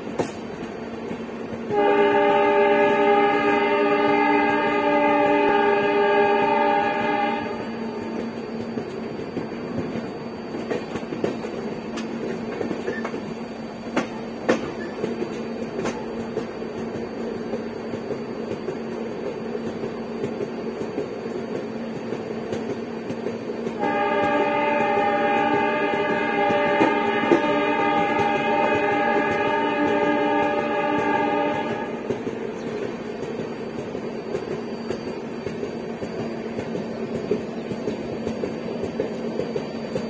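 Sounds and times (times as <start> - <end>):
train running gear rumble: 0.0 - 40.0
locomotive horn blast: 1.7 - 7.7, 23.8 - 32.1
wheels clicking on track: 8.0 - 40.0.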